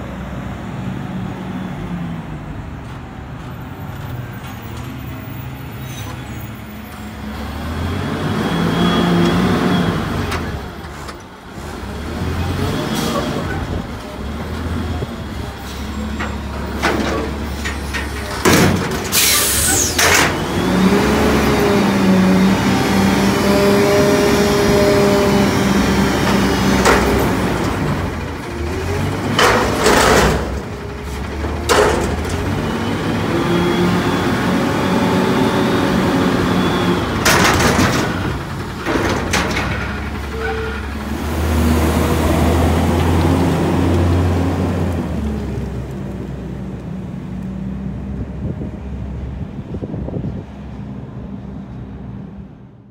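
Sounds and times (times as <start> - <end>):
diesel truck engine: 0.0 - 52.9
dumpster clanking on forks: 16.1 - 20.4, 26.2 - 32.7, 37.2 - 40.9
air brake hiss: 19.2 - 20.0.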